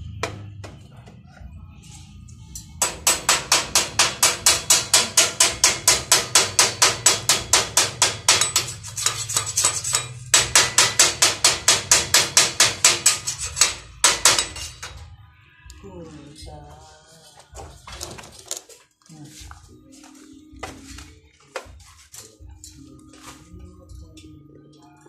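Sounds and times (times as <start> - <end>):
ringing metal-on-metal hammering: 2.4 - 15.1.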